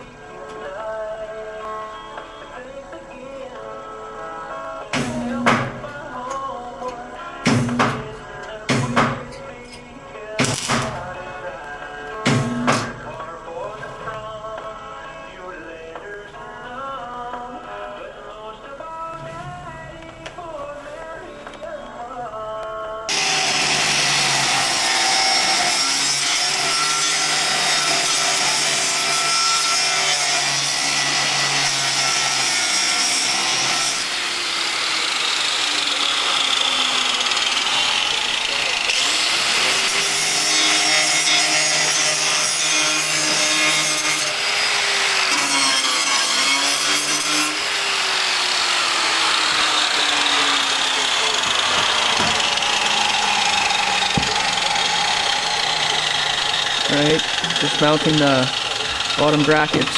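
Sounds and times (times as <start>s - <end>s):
grinder motor whining: 23.1s - 59.9s
harsh grinding on steel: 23.1s - 59.9s.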